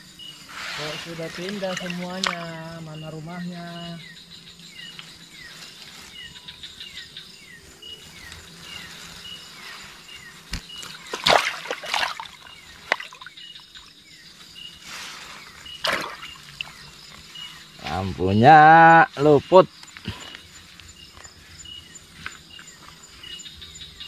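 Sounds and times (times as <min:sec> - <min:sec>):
water sloshing: 0:00.7 - 0:02.8, 0:10.9 - 0:13.3, 0:15.8 - 0:16.8.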